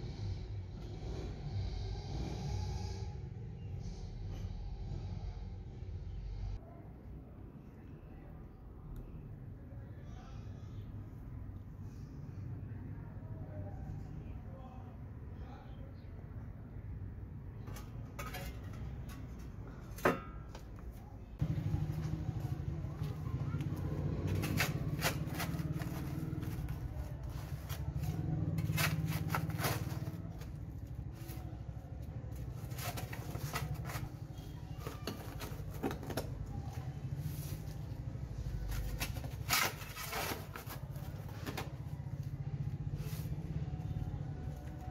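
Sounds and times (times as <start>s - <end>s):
shovel scraping dirt and gravel: 27.3s - 30.5s.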